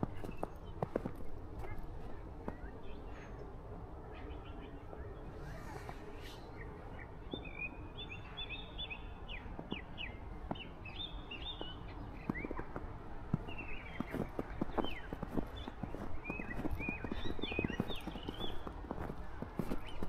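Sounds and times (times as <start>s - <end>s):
low background hum: 0.0s - 20.0s
small birds chirping: 0.0s - 20.0s
footsteps crunching in snow: 12.2s - 20.0s.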